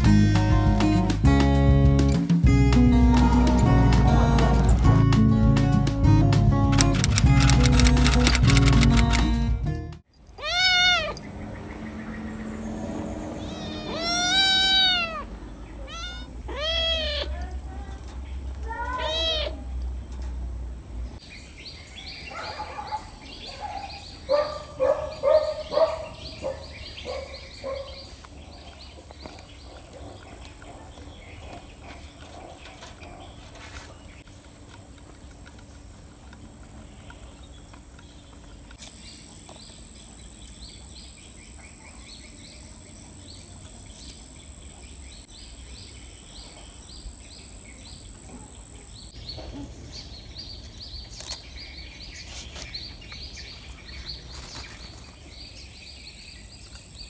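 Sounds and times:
cats meowing: 10.3 - 11.2, 13.3 - 17.7, 18.7 - 19.7
rapid short animal calls: 13.4 - 17.3.

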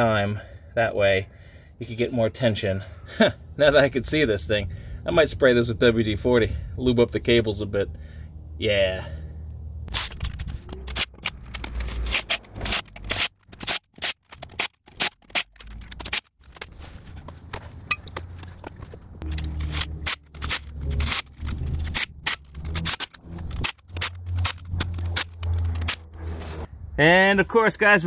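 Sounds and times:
lug nuts rattling and clicking: 9.9 - 26.2.

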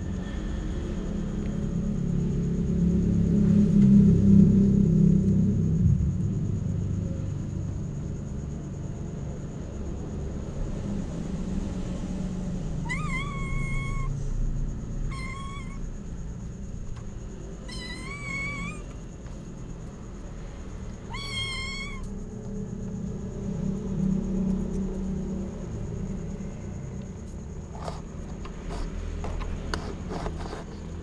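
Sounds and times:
steady low rumble: 0.0 - 9.0
cat meowing: 12.8 - 14.2, 15.1 - 15.8, 17.6 - 19.0, 21.0 - 22.1.

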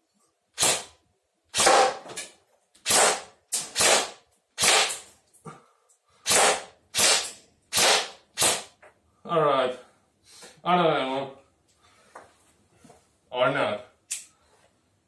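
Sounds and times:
airsoft rifle firing single shots: 1.5 - 2.0, 2.8 - 5.0, 6.3 - 8.8.

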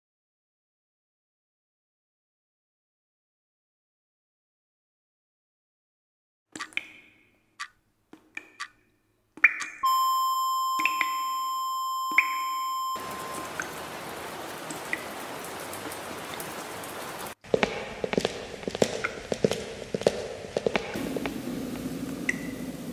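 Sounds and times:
crackling clicks: 6.6 - 7.0
steady electronic beep: 9.6 - 13.5.

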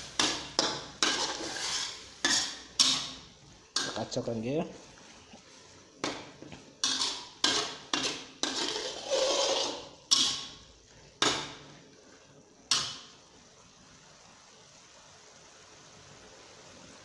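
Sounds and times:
spatula scraping wok: 0.0 - 13.2
spatula clanking on wok: 0.1 - 4.2, 6.0 - 10.6, 11.2 - 11.6.

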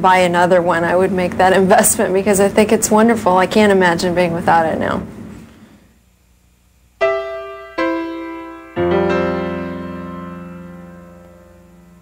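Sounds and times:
musical sting with ringing chord: 7.0 - 12.0.

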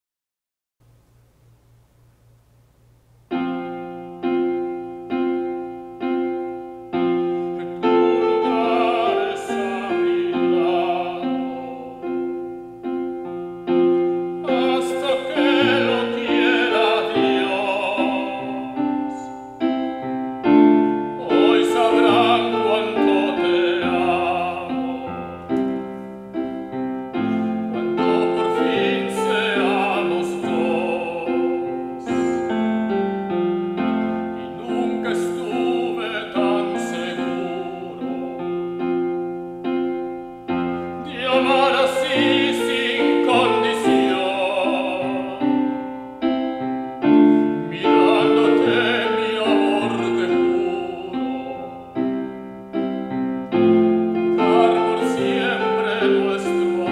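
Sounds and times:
piano chords: 0.8 - 56.9
male tenor singing operatically: 7.6 - 12.6, 14.3 - 19.2, 20.5 - 25.6, 27.2 - 39.0, 41.0 - 45.9, 47.0 - 52.1, 54.2 - 56.9.

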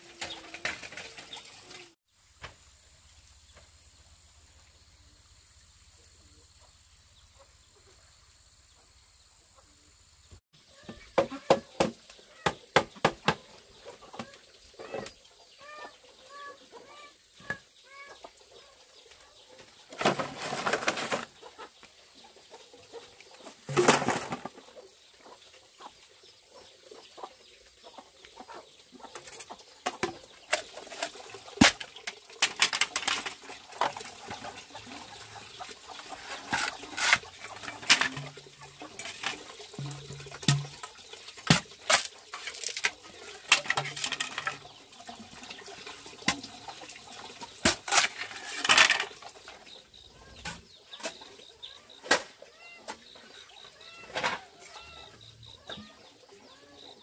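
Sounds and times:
bamboo clattering: 0.0 - 2.6, 19.8 - 21.5, 23.4 - 24.6, 29.1 - 45.6, 46.2 - 49.7, 54.0 - 54.8.

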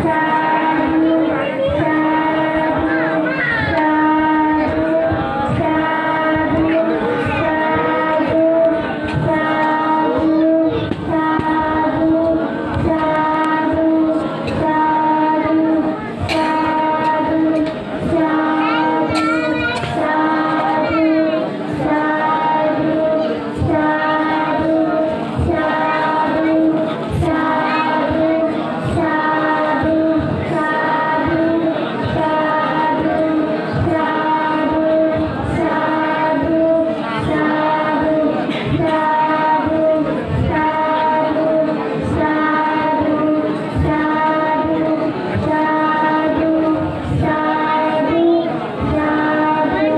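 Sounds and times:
held steady music notes: 0.0 - 49.9
person singing: 0.0 - 49.9.

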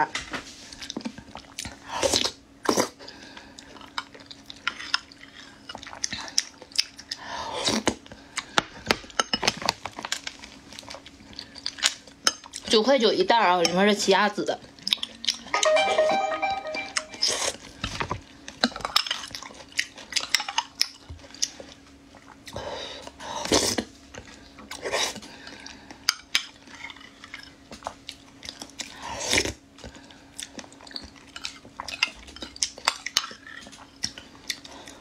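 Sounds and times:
chewing: 0.8 - 8.6, 14.6 - 15.5, 18.6 - 22.6, 23.4 - 35.0.

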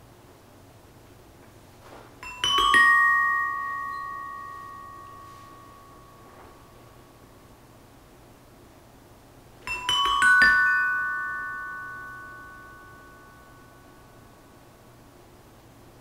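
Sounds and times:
metallophone notes ringing: 2.2 - 7.5, 9.6 - 14.6.

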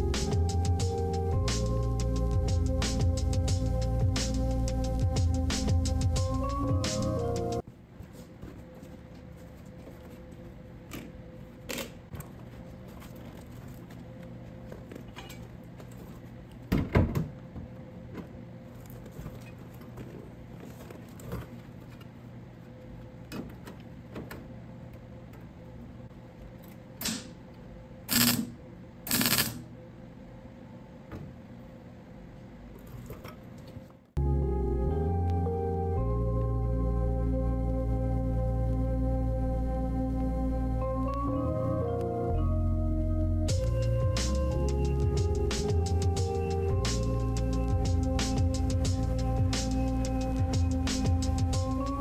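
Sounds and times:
low steady hum: 0.0 - 52.0
welding bursts: 28.1 - 28.5, 29.1 - 29.6.

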